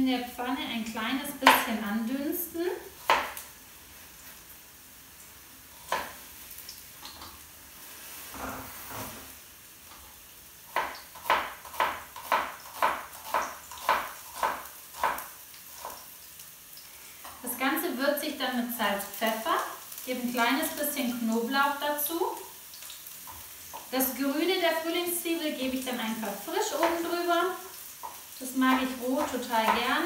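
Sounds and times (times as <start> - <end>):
knife chopping on a cutting board: 3.0 - 3.4, 10.7 - 15.3.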